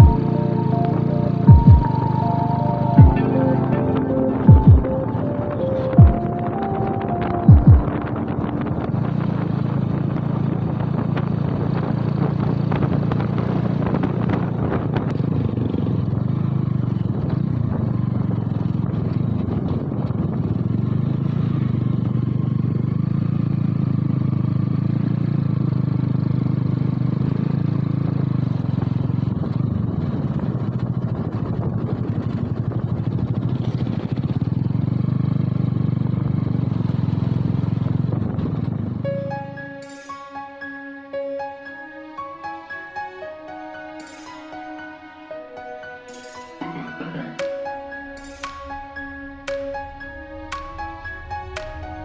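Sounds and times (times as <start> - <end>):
motorcycle engine running: 0.0 - 40.1.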